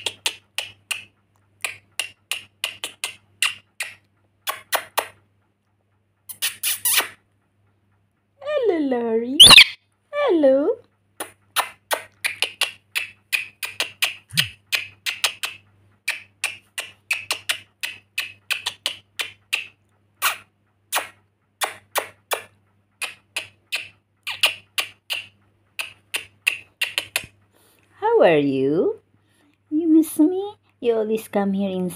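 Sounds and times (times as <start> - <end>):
parrot making sharp clicks: 0.0 - 5.2, 11.2 - 27.4.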